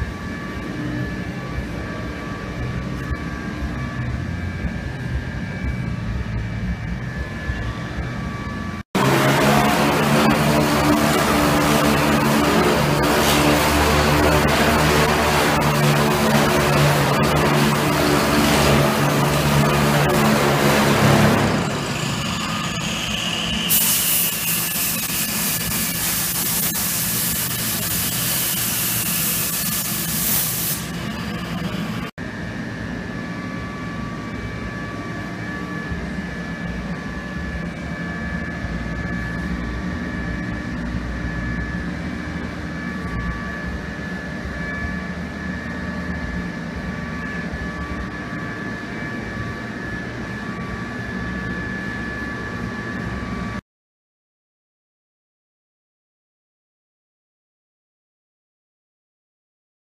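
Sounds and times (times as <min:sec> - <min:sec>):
power tool hissing against sheet metal: 0:09.1 - 0:31.1.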